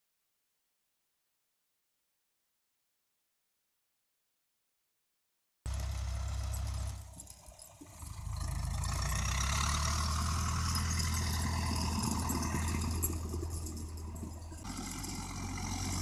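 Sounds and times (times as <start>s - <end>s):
tractor diesel engine running: 5.7s - 16.0s.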